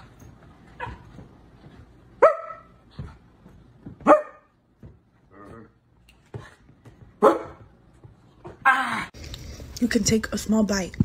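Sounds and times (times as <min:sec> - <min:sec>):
small dog barking: 0:02.2 - 0:02.7, 0:04.0 - 0:04.5, 0:07.2 - 0:07.6.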